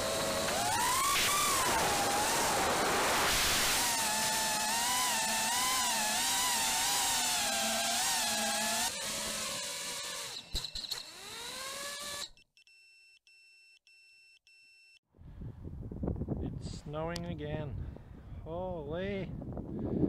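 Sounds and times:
quadcopter motors whining: 0.0s - 12.4s.

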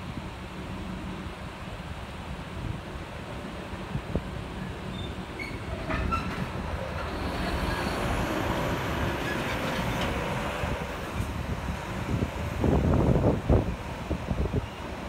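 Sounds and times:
short squeals: 5.0s - 6.4s.

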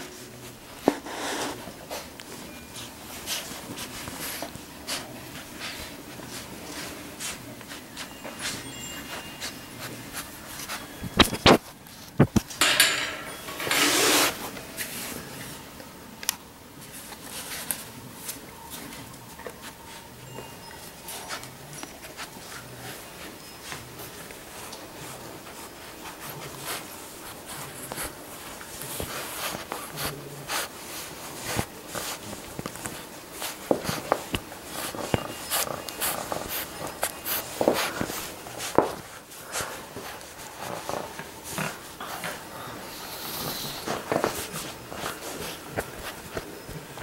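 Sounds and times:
puppy chewing a plush toy: 17.1s - 47.0s
puppy snorting snuffles: 41.4s - 45.6s.

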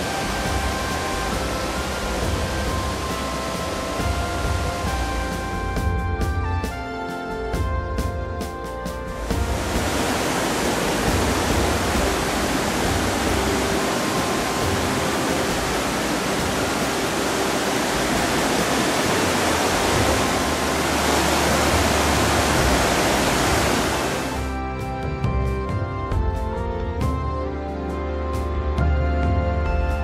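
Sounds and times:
stream rushing over rocks: 0.0s - 5.6s, 9.2s - 24.6s.

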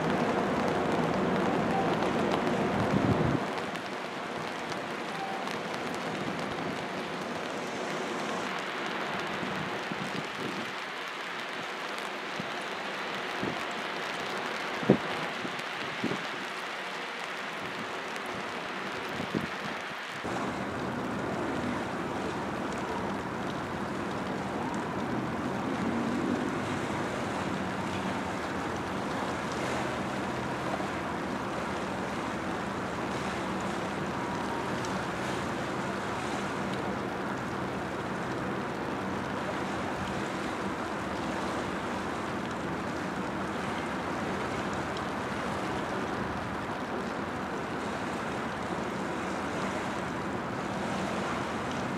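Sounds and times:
water noise: 0.0s - 51.9s
wind on microphone: 2.7s - 3.6s, 14.8s - 16.4s, 19.1s - 20.7s.

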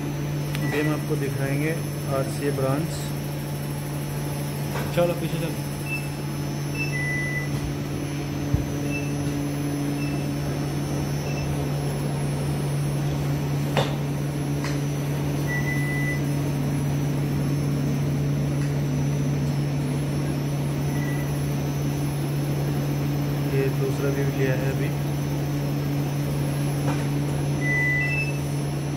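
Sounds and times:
electrical and ventilation hum: 0.0s - 28.9s
short electronic beeps: 5.8s - 7.6s, 15.5s - 16.2s.

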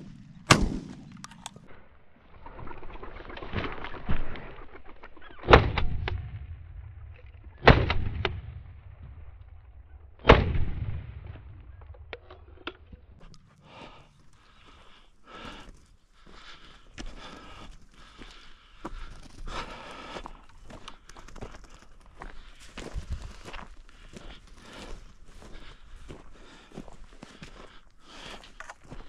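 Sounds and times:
shotgun shots with echo: 0.0s - 1.2s, 7.6s - 8.8s, 10.2s - 12.2s.

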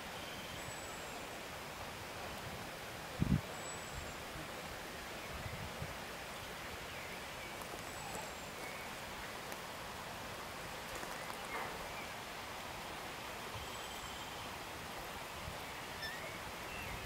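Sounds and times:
outdoor background hiss: 0.0s - 17.0s
small birds chirping: 13.5s - 17.0s.

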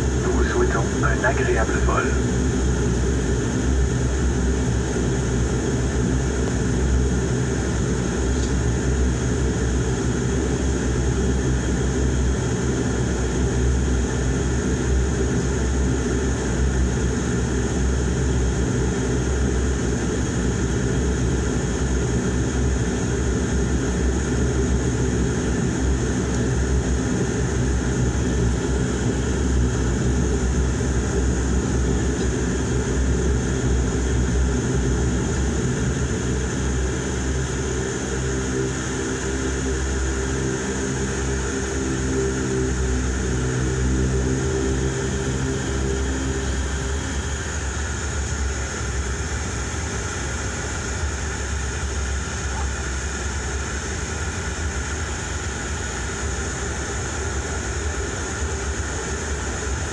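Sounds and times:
high engine whine: 0.0s - 59.9s
turboprop engine drone: 0.0s - 59.9s.

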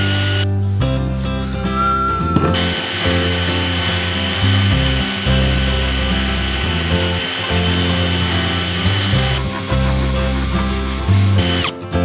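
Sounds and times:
drill motor whine: 0.0s - 0.4s, 2.5s - 11.7s
background music with bass: 0.0s - 12.0s
wire brush scrubbing metal: 2.6s - 11.7s.

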